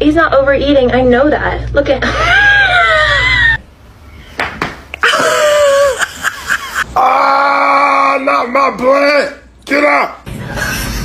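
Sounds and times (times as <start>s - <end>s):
woman squealing: 2.2s - 3.6s
man yelling: 7.0s - 10.2s.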